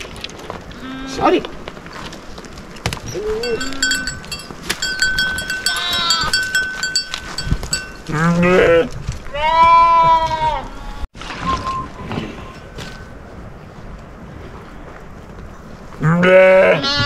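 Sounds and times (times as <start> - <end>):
light clinks: 3.0 - 8.1
faint high ringing: 3.1 - 8.2, 11.4 - 13.7
sheep bleating: 5.6 - 6.4, 8.1 - 10.8, 16.2 - 17.0.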